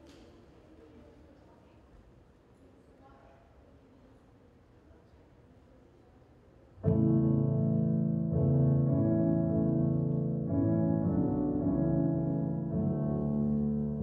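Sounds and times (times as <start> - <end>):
slow piano chords: 6.8 - 14.0.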